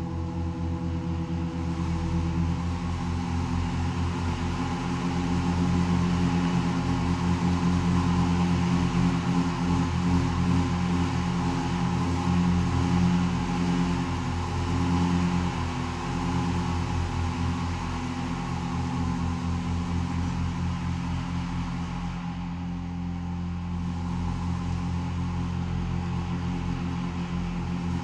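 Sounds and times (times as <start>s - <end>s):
pipe organ sustained low tones: 0.0s - 28.0s.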